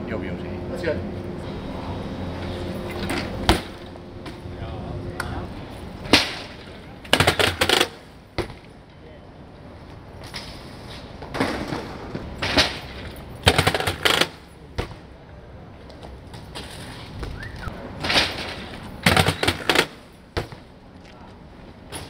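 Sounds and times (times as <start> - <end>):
bike sharp clacks: 2.4 - 4.5, 5.2 - 8.8, 10.2 - 15.1, 15.9 - 20.8
bike wheels rattling on paving: 10.3 - 14.5, 16.2 - 20.8.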